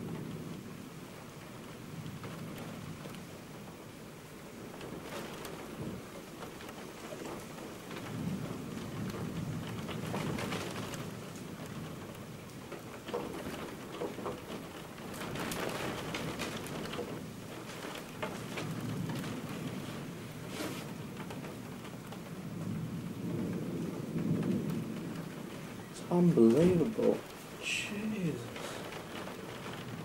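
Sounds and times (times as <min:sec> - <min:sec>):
steady rain: 0:00.0 - 0:30.0
low thunder rumbling: 0:07.1 - 0:30.0.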